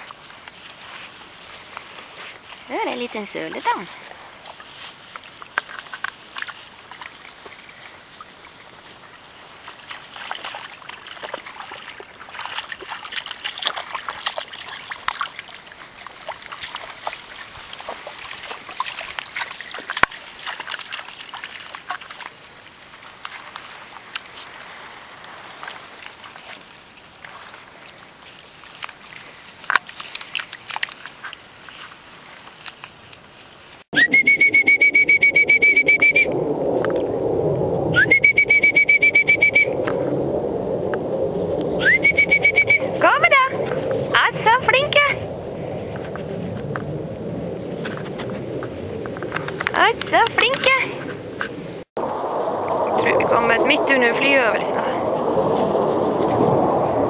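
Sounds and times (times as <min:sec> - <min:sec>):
puppies splashing in water: 0:00.0 - 0:33.9
running water trickle: 0:00.0 - 0:33.9
rustling in wet grass: 0:00.0 - 0:34.0, 0:38.7 - 0:57.0
high whistle note: 0:34.0 - 0:36.4, 0:37.9 - 0:40.0, 0:41.8 - 0:43.0.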